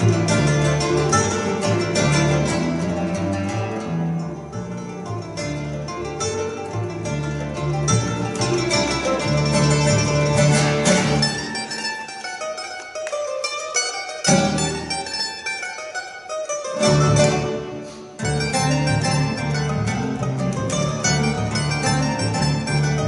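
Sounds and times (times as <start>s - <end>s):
double bass line: 0.0s - 11.8s, 16.6s - 23.0s
acoustic guitar: 0.0s - 23.0s
mandolin picking melody: 0.0s - 23.0s.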